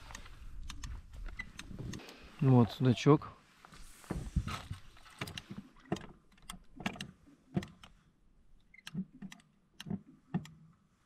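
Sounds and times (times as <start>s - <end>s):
sharp clicks and light knocks: 5.1s - 8.0s, 8.6s - 10.7s.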